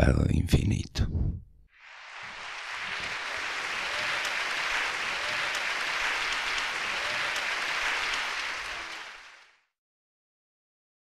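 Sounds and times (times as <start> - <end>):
audience applauding: 1.8 - 9.7.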